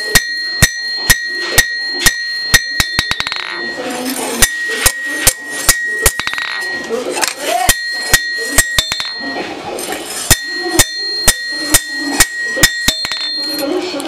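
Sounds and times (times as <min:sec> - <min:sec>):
hammer striking steel on anvil: 0:00.0 - 0:09.5, 0:10.2 - 0:13.7.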